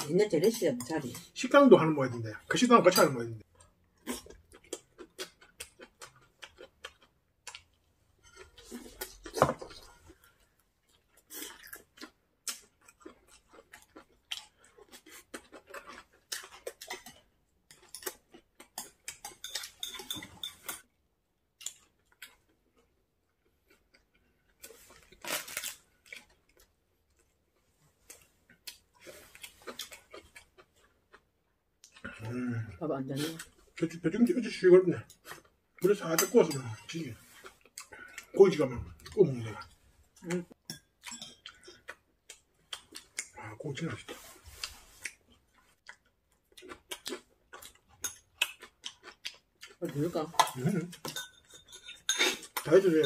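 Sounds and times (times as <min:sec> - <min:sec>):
person chewing: 0:03.0 - 0:52.7
utensils clinking against dishes: 0:19.1 - 0:20.8, 0:50.4 - 0:53.0.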